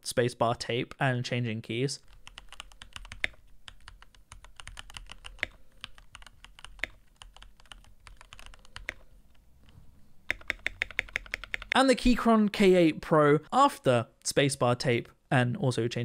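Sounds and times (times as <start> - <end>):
mechanical keyboard typing: 2.1 - 9.1, 10.3 - 11.8.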